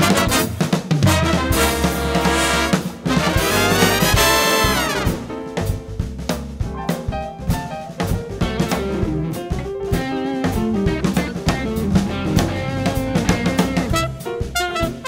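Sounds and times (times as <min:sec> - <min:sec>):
big band music: 0:00.0 - 0:15.0
drum kit rimshots and bass drum: 0:00.0 - 0:15.0
guitar: 0:00.0 - 0:15.0.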